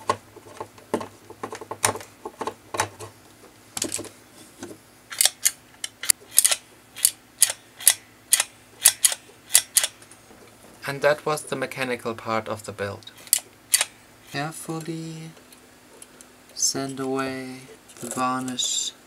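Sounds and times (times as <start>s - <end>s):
mechanism clicks: 5.1s - 10.0s, 13.1s - 14.0s.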